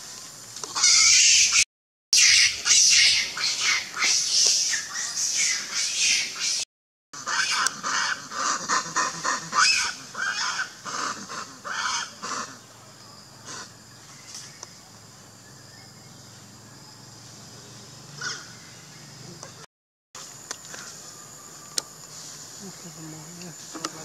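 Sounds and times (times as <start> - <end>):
macaque calling: 0.7 - 1.6, 2.2 - 6.6, 7.2 - 12.7, 18.2 - 18.6.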